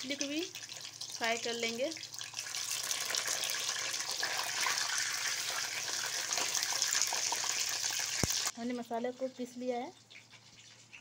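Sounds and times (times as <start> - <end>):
fish frying in hot oil: 0.0 - 8.7.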